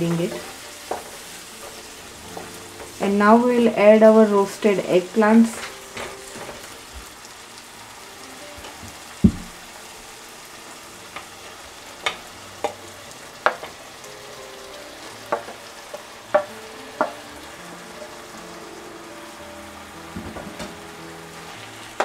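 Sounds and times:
food sizzling in a frying pan: 0:00.0 - 0:22.0
dull knock: 0:09.2 - 0:09.6.

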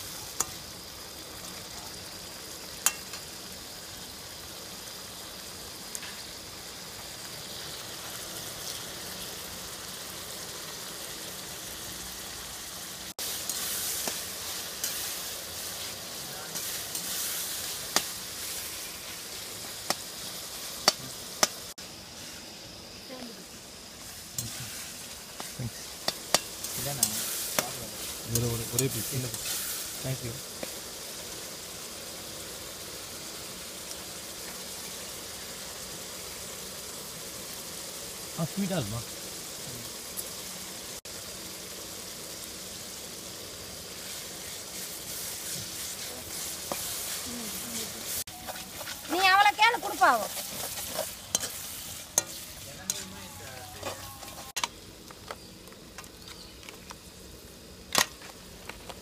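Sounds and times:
vegetables sizzling in a pan: 0:00.0 - 0:59.0
metal spatula stirring: 0:13.3 - 0:18.7, 0:24.4 - 0:29.6, 0:44.0 - 0:49.4, 0:50.2 - 0:54.6.

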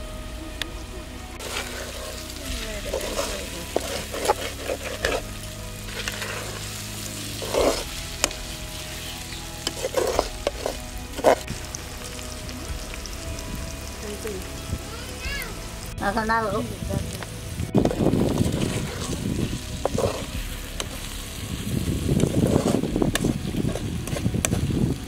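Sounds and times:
okra sizzling in a pan: 0:00.0 - 0:25.0
ladle scraping a pan: 0:01.4 - 0:11.7, 0:18.3 - 0:21.3.

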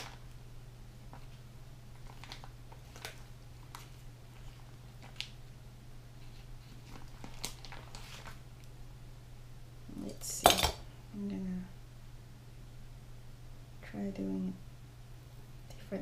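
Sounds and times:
plastic package crinkling: 0:00.0 - 0:00.4, 0:01.1 - 0:05.4, 0:06.2 - 0:08.4
steady low hum: 0:00.0 - 0:16.0.

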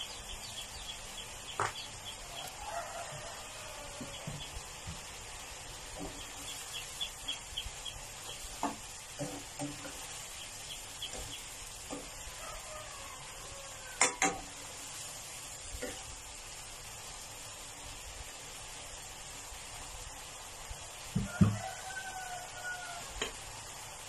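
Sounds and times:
chicken simmering in water: 0:00.0 - 0:24.0
spatula stirring and scraping: 0:08.3 - 0:12.4
spatula knocking against pan: 0:08.6 - 0:10.1.

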